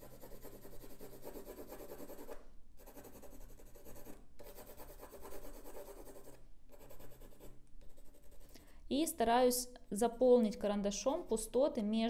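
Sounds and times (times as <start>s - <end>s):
pencil scratching on paper: 0.0s - 8.6s.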